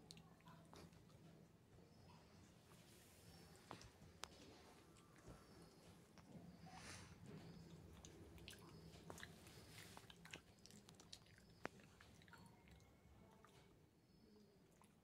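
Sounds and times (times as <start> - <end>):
puppy chewing a stick: 7.2 - 13.7.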